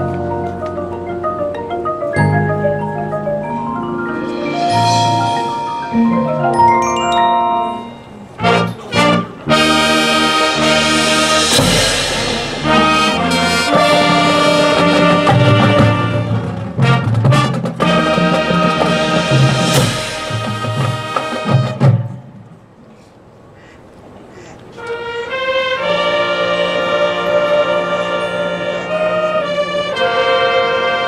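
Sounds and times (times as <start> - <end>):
marimbas and mallet percussion: 0.0 - 8.4
marching band with brass: 0.0 - 22.5, 24.6 - 31.0
loud band hits: 4.2 - 6.8, 8.4 - 22.2.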